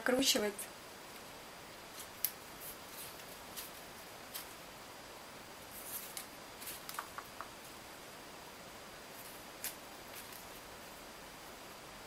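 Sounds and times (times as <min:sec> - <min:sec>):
tape and wire rustling: 0:01.9 - 0:04.6, 0:05.7 - 0:07.8, 0:09.1 - 0:10.8.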